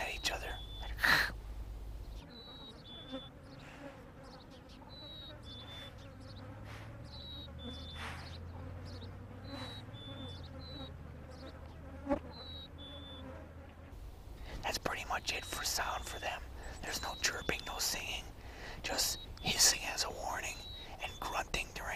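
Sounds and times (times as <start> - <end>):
low steady buzz: 0.0 - 21.9
vultures hissing: 2.2 - 10.9, 14.0 - 21.6.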